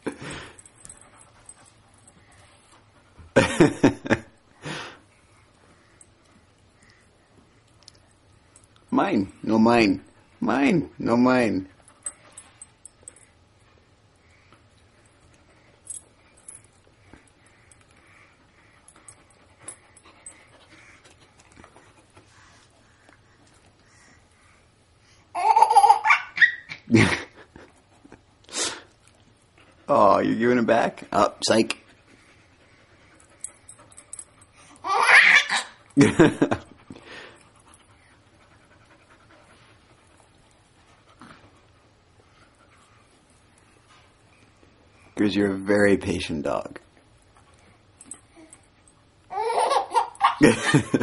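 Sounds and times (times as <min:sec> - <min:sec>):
dog panting softly: 0:00.4 - 0:03.4, 0:11.6 - 0:25.3, 0:27.6 - 0:34.8, 0:36.8 - 0:45.2
loud laughter: 0:50.2 - 0:51.0.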